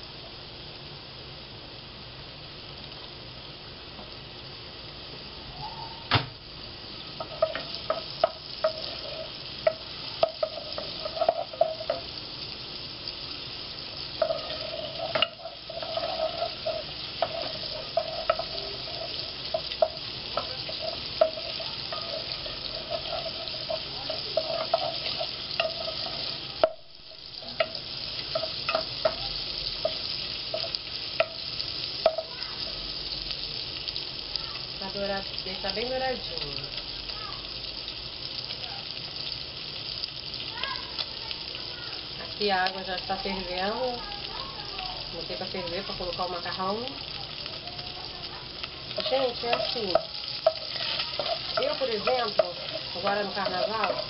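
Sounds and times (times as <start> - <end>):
bacon sizzling in oil: 0.0 - 54.0
wooden spoon knocking pot: 7.2 - 12.1, 14.2 - 26.9.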